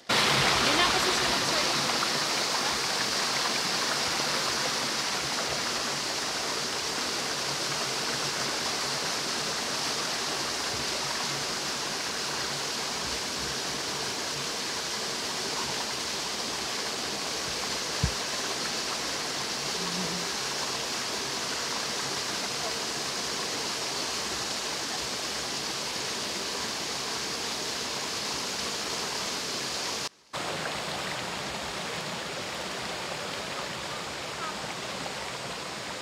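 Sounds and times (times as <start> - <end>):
creek rushing over rapids: 0.0 - 36.0.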